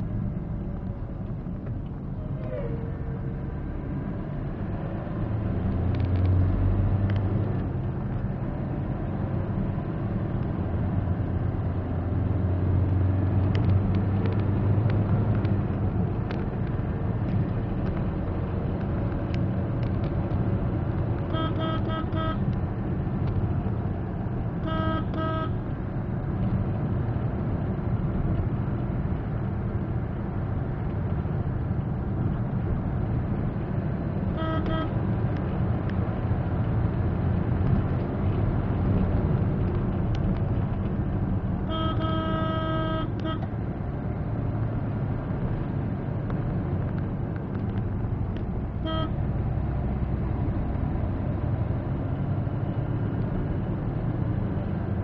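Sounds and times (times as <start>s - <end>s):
car engine and road rumble: 0.0s - 55.0s
car horn toots: 21.3s - 22.5s, 24.6s - 25.6s, 34.3s - 35.0s, 41.6s - 43.5s, 48.8s - 49.2s.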